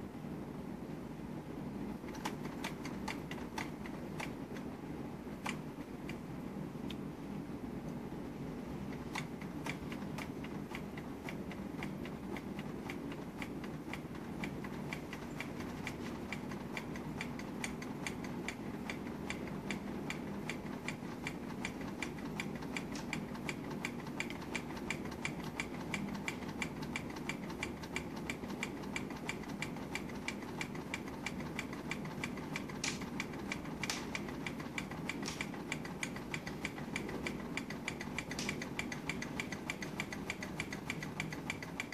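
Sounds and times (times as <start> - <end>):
small engine parts ticking: 9.2 - 41.9.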